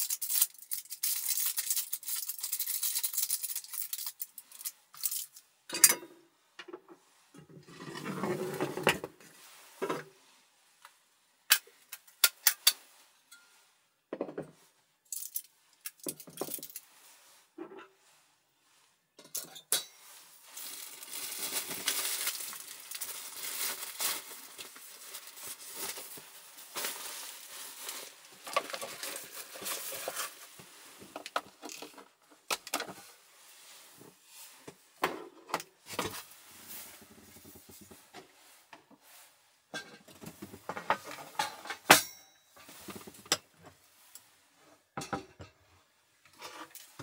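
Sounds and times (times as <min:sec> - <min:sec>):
rustling: 0:19.8 - 0:35.0, 0:35.7 - 0:45.0.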